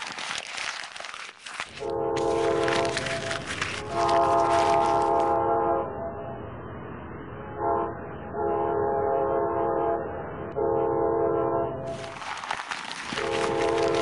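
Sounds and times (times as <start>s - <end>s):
train horn blasts: 1.8s - 2.7s, 4.0s - 6.3s, 7.5s - 11.9s.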